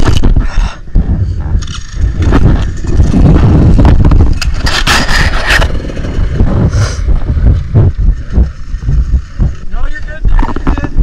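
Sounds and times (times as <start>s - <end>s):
vehicle rumble: 0.0s - 11.0s
knocks and clatter: 1.0s - 11.0s
hissing rush: 4.9s - 9.1s.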